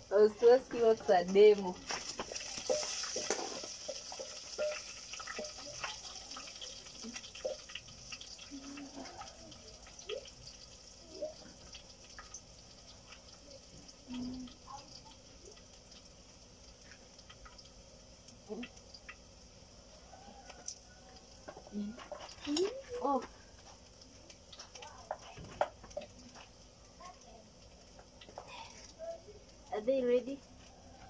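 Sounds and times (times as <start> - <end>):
onions sizzling in oil: 0.0 - 31.0
pops and crackles: 1.5 - 8.5, 21.4 - 26.6.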